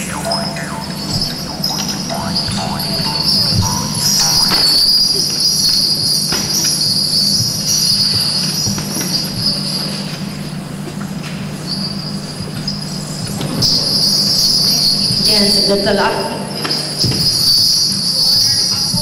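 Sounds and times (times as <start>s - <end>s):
steady low drone: 0.0s - 11.0s
small brass bells jingling: 0.0s - 19.0s.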